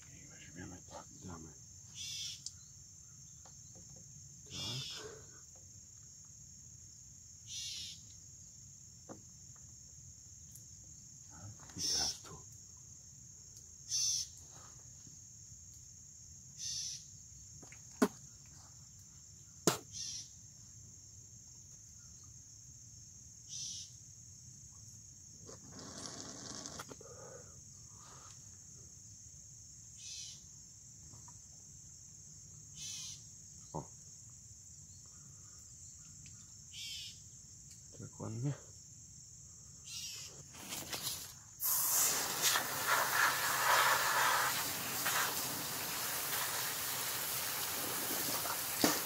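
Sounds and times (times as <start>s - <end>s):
crickets trilling: 0.0s - 49.0s
siphon tube sucking rush: 41.6s - 45.4s.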